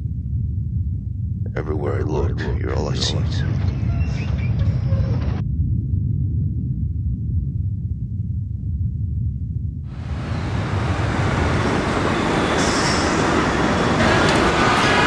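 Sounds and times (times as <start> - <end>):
low rumble: 0.0 - 15.0
rushing noise: 9.9 - 15.0.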